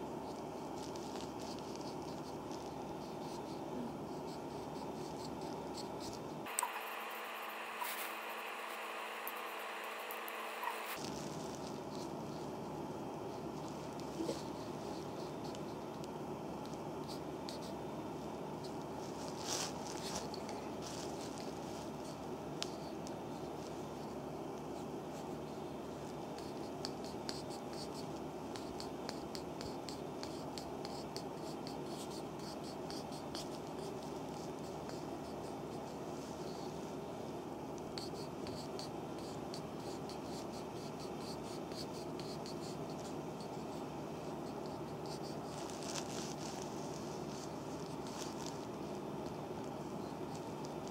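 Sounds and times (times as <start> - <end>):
steady background hiss: 0.0 - 50.9
steady background noise: 0.0 - 50.9
massage stick rubbing oiled skin: 0.3 - 3.5, 4.3 - 12.8, 18.2 - 24.2, 38.2 - 50.9.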